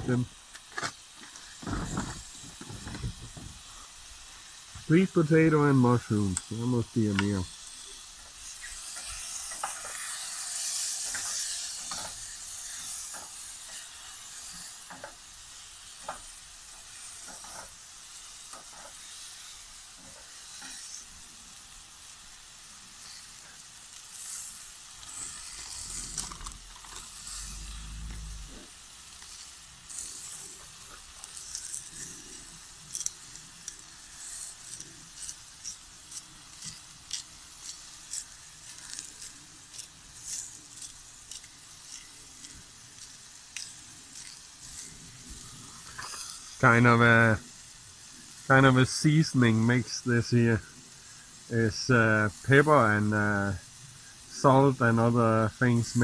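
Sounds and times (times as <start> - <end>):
mushrooms sizzling in a pan: 0.0 - 56.0
seasoning grinder clicking: 8.4 - 21.1, 23.9 - 46.6.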